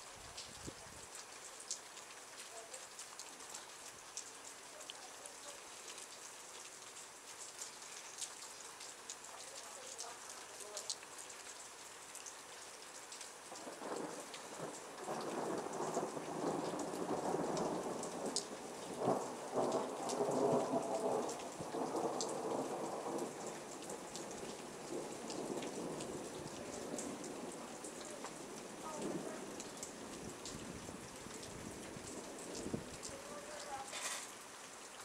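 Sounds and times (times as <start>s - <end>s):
steady rain falling: 0.0s - 35.0s
raindrop taps: 13.1s - 34.4s
rolling thunder: 13.7s - 33.0s.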